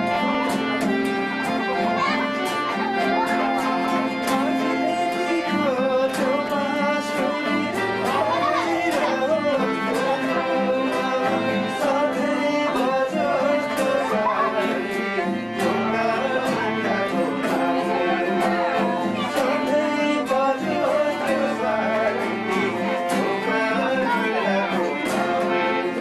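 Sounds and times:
bowed strings melody: 0.0s - 26.0s.

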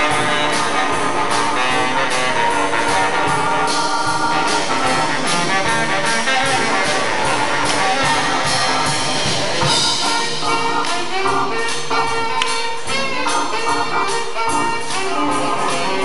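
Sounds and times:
drum kit beat: 0.0s - 16.0s
jazz band playing swing: 0.0s - 16.0s.

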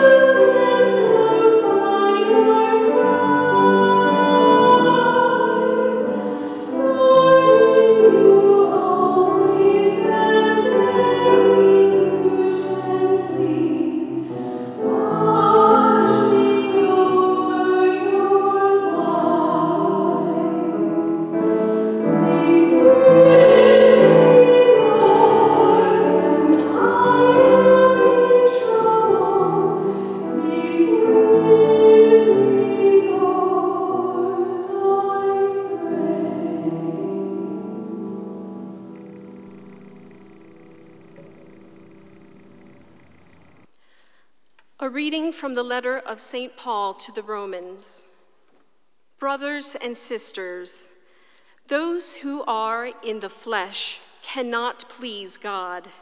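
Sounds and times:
held accompanying chords: 0.0s - 44.0s.

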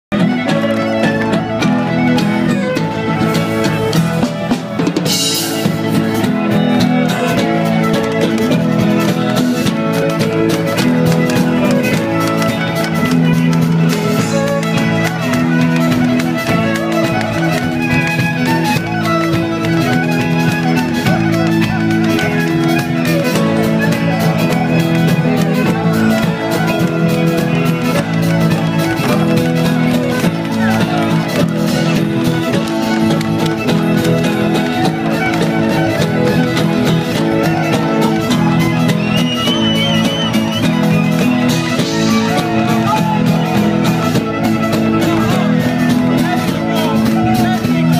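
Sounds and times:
fast percussion: 0.1s - 47.9s
folk-rock band playing: 0.1s - 47.9s
guitar: 0.1s - 47.9s
violin lead: 0.1s - 47.9s.

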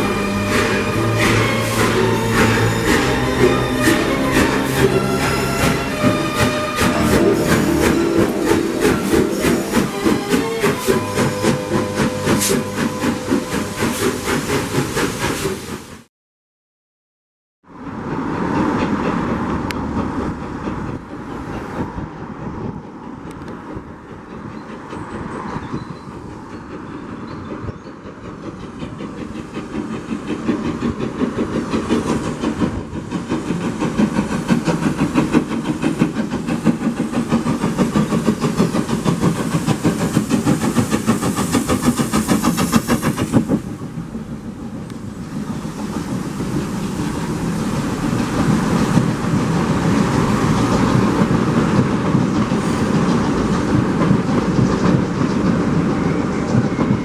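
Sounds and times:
wheels clacking over rail joints: 0.0s - 15.0s, 22.7s - 57.0s
steam engine exhaust chuffing: 0.0s - 16.1s, 28.2s - 44.5s
train coaches rumbling past: 0.0s - 16.1s, 17.7s - 57.0s.

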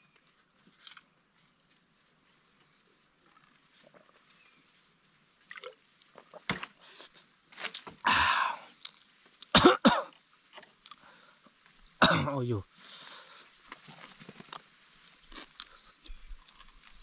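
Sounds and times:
man exhaling loudly: 8.0s - 8.7s
man coughing: 9.5s - 10.1s, 12.0s - 12.6s.

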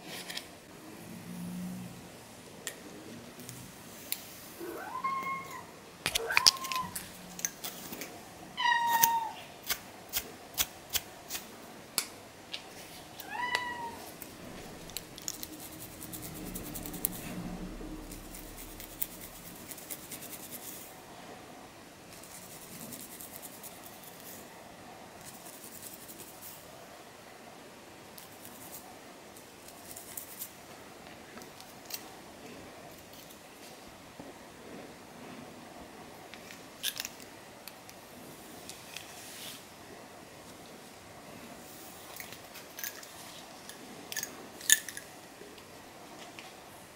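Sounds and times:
cat meowing: 4.6s - 7.1s, 8.6s - 9.5s, 13.2s - 15.0s
fingernails scratching through hair: 14.4s - 20.9s.

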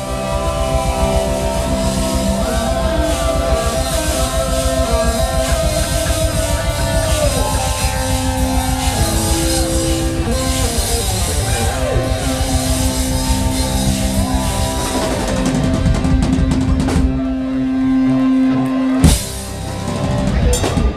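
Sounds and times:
drum fills: 0.0s - 17.6s, 19.0s - 20.9s
live rock band: 0.0s - 20.9s.

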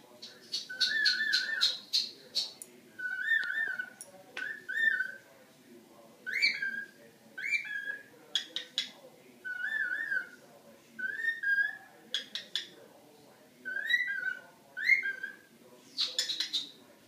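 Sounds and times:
cockatiel whistling: 0.6s - 2.1s, 6.3s - 8.1s, 9.5s - 10.4s, 11.0s - 11.8s, 13.7s - 15.4s.

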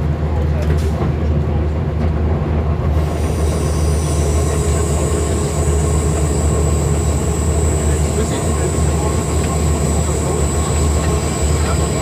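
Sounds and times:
diesel engine droning: 3.2s - 12.0s.

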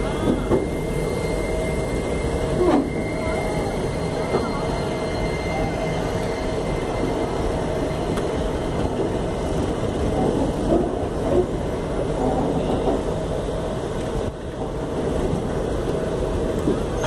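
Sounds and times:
train coach clanks: 0.0s - 1.5s, 7.9s - 13.2s, 13.9s - 17.0s
train wheels rumbling on rails: 0.0s - 17.0s.

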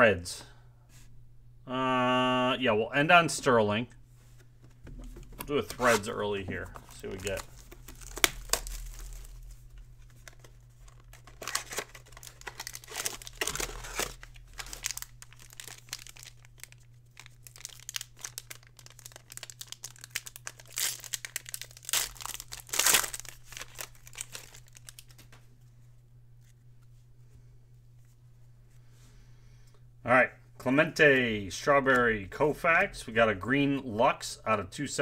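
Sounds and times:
plastic wrapper crinkling and tearing: 5.6s - 25.4s.

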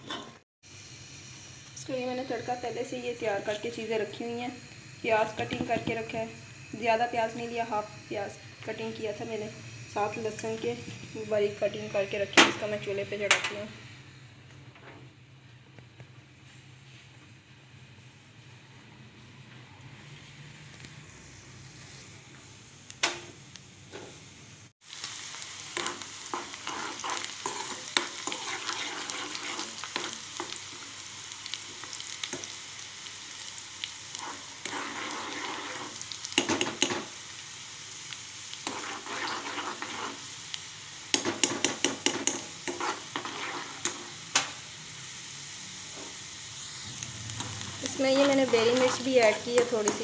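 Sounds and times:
onion sizzling in hot oil: 0.1s - 14.3s, 20.0s - 50.0s
steel spatula clicking and scraping: 25.8s - 30.8s, 34.1s - 37.0s, 38.6s - 40.2s, 41.1s - 44.1s, 47.4s - 50.0s.

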